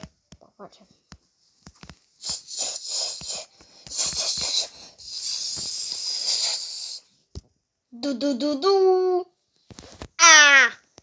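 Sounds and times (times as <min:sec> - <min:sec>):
long hissing: 0:02.2 - 0:07.1.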